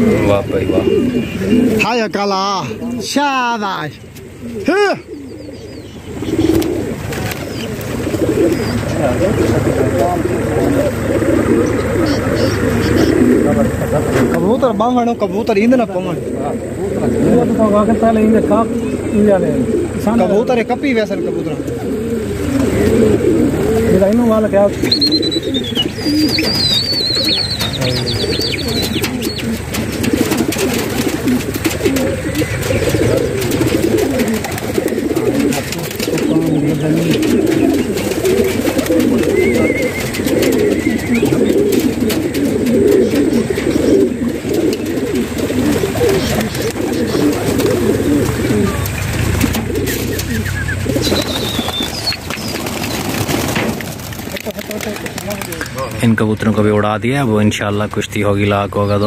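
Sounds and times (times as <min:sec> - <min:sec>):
pigeons cooing: 0:00.0 - 0:59.0
thin high bird chirps: 0:24.9 - 0:29.6, 0:49.9 - 0:53.3.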